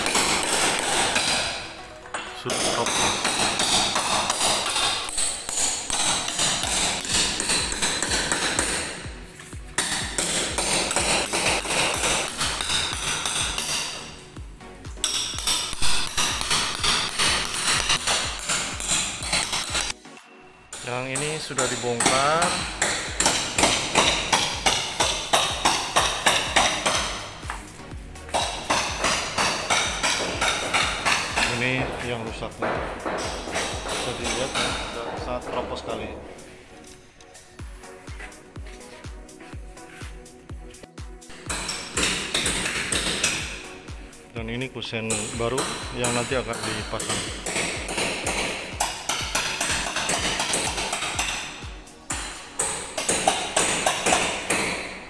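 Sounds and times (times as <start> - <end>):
sharp metallic strikes: 0.0 - 9.1, 20.7 - 38.0.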